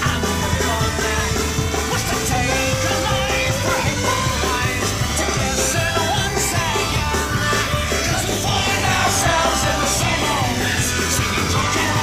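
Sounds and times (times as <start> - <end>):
punk rock song with singing: 0.0 - 12.0.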